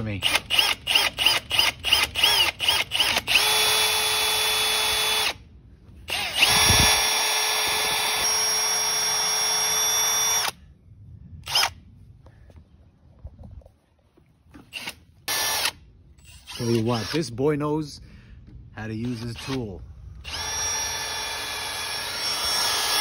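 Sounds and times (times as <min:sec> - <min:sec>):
cordless drill boring into metal: 0:00.0 - 0:05.4, 0:06.1 - 0:10.6, 0:11.4 - 0:11.7, 0:14.7 - 0:17.3, 0:19.0 - 0:23.0.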